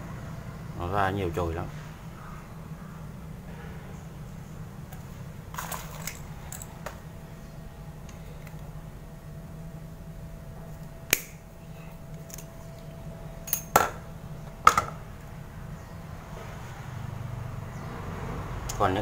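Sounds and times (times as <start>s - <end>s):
low steady hum: 0.0s - 19.0s
sharp clicks of wiring: 11.1s - 11.4s.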